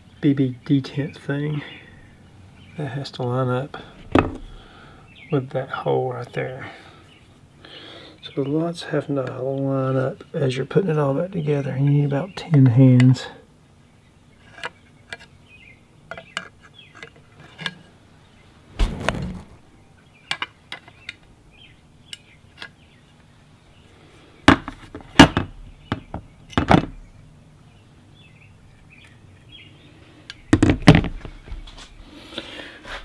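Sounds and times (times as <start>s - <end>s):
loud knocks of parts set down: 4.0s - 4.6s, 18.8s - 19.6s, 24.5s - 27.0s, 30.5s - 31.3s.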